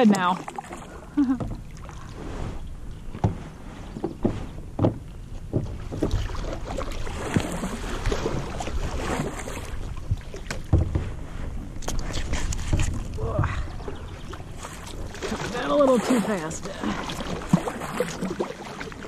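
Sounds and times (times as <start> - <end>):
kayak paddle splashing water: 0.0 - 19.0
sharp knocks on kayak: 3.2 - 3.4, 4.0 - 6.3, 10.5 - 11.1.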